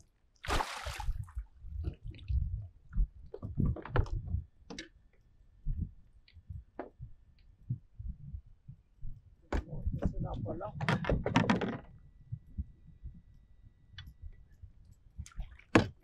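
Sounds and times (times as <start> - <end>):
water splashing: 0.4 - 1.3.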